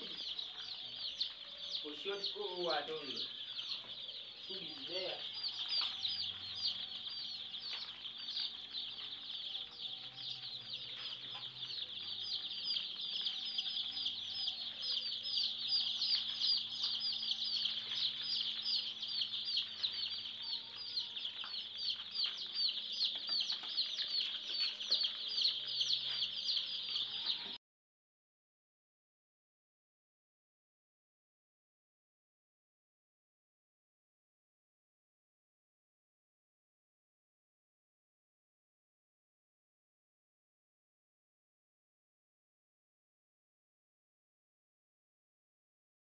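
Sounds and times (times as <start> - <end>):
chicks peeping: 0.0 - 27.6.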